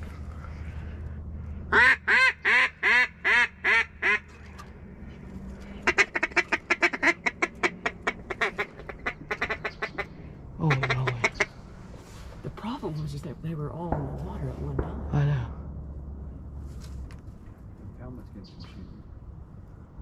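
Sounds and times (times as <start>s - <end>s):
duck call clucks: 1.7s - 4.3s, 5.8s - 10.1s, 10.7s - 11.5s
duck call quacks: 1.7s - 4.3s, 5.8s - 10.1s, 10.7s - 11.5s.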